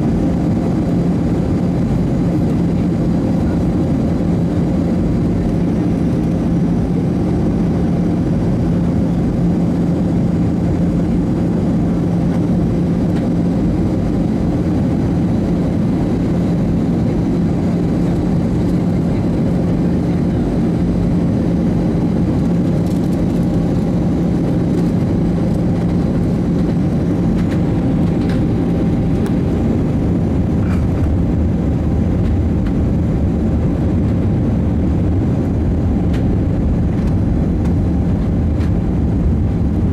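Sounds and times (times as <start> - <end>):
engine and airflow rush: 0.0 - 39.9
steady low hum: 0.0 - 39.9.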